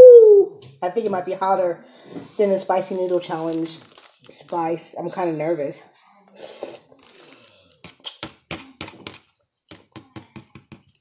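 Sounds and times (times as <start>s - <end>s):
chewing: 6.3s - 8.2s.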